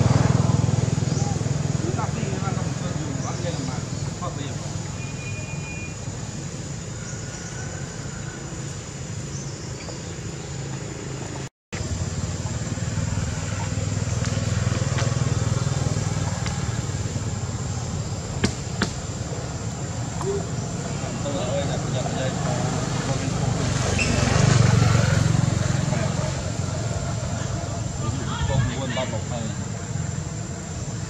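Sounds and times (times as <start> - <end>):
low outdoor rumble with hiss: 0.0 - 31.0.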